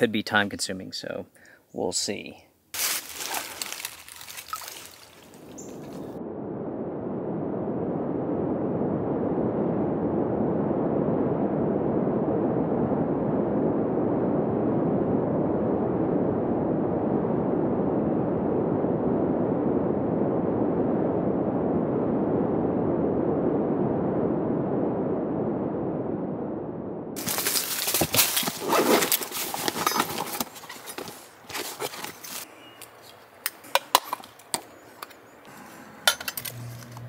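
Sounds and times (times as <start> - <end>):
low rumbling noise: 5.4 - 31.4.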